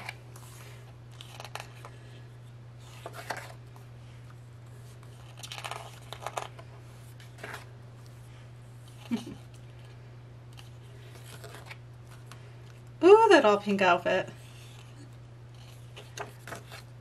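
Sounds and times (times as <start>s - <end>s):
paper pages rustling: 0.0s - 2.1s, 2.8s - 8.2s, 8.8s - 12.8s, 14.4s - 17.0s
steady low hum: 0.0s - 17.0s.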